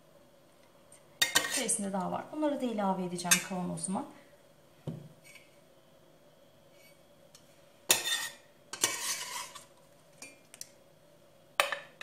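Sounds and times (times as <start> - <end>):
metal ladle scraping a pot: 1.2 - 1.8, 7.9 - 9.7.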